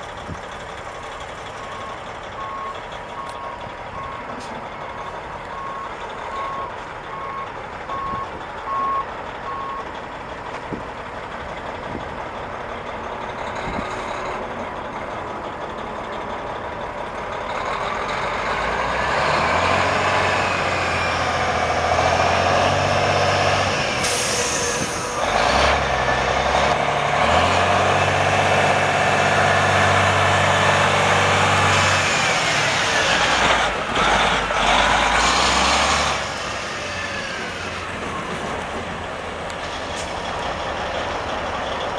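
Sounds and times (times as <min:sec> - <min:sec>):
truck reverse alarm beeping: 0:01.0 - 0:09.9
truck diesel engine revving: 0:11.0 - 0:41.9.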